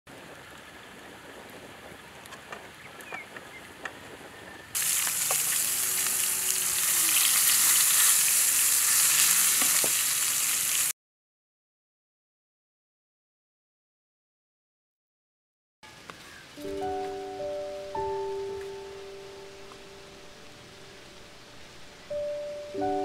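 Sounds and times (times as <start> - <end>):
steak sizzling in a pan: 4.8 - 10.9.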